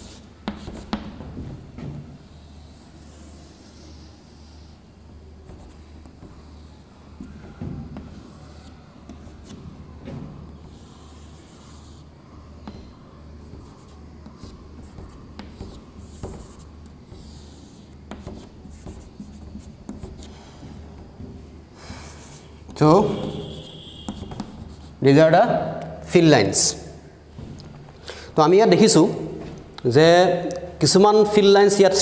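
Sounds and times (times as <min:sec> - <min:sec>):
chalk scratching on chalkboard: 0:00.0 - 0:01.2, 0:02.2 - 0:09.9, 0:10.5 - 0:25.1
chalk tapping: 0:00.0 - 0:01.6, 0:05.4 - 0:25.0.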